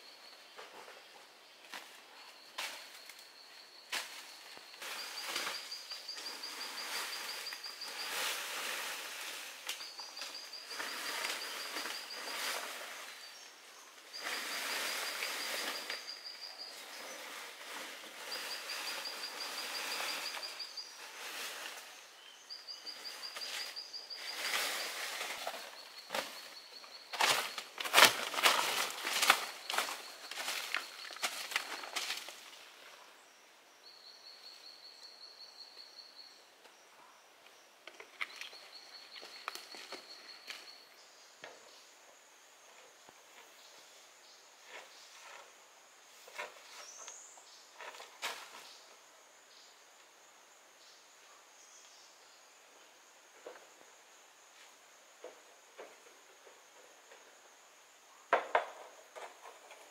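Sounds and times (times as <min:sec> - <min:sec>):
footsteps in dry leaves: 0:24.2 - 0:32.6.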